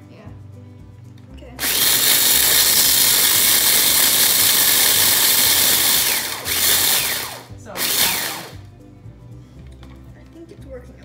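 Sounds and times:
food chopper whirring: 1.6s - 8.6s.

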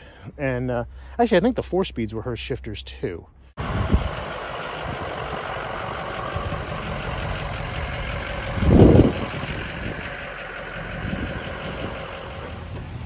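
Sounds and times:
truck engine running: 3.6s - 13.0s.

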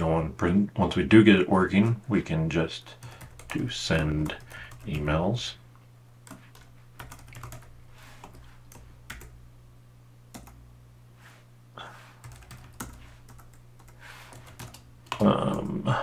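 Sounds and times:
faint low hum: 0.0s - 16.0s
typing on a keyboard: 3.0s - 3.6s, 6.3s - 9.3s, 12.2s - 15.8s.

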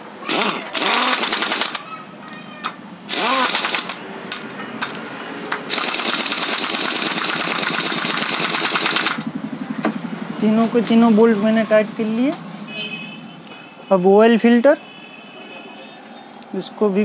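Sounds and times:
pneumatic impact wrench hammering: 0.2s - 1.9s, 2.6s - 9.3s.

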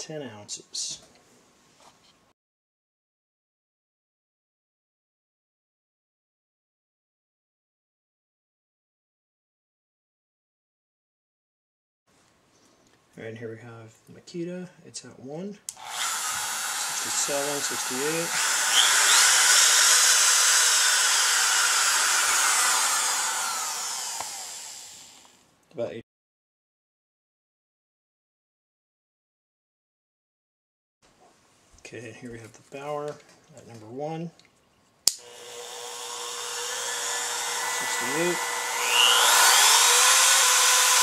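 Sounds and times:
router motor whining: 15.7s - 25.4s, 35.1s - 41.0s.

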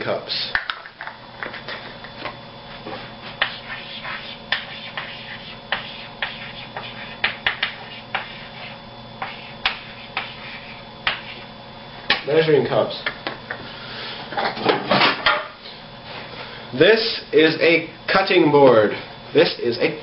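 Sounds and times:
chalk tapping on a blackboard: 3.3s - 11.4s.

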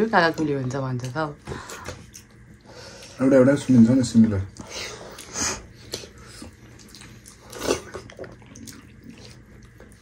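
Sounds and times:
wet chewing and lip smacks: 4.5s - 10.0s.

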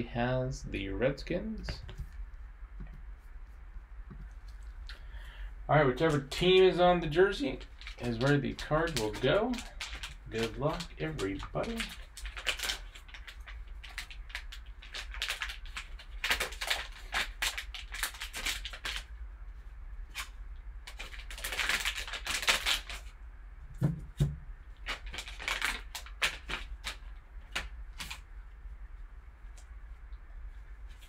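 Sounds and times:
foil pack crinkling: 6.0s - 19.1s, 20.0s - 23.2s, 24.7s - 28.3s.

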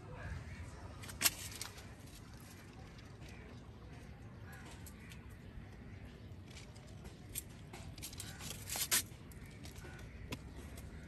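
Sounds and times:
leaves rustling and clicking: 0.9s - 11.0s.

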